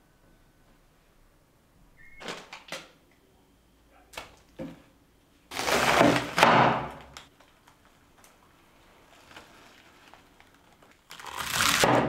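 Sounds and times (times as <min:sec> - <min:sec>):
knife cutting through cabbage: 0:05.5 - 0:06.6, 0:11.1 - 0:12.0.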